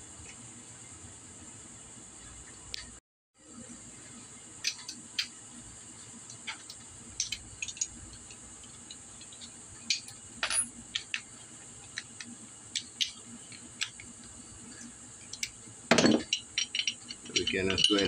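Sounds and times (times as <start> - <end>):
steady high hiss: 0.0 - 18.0
metallic clinks of tools: 15.9 - 18.0.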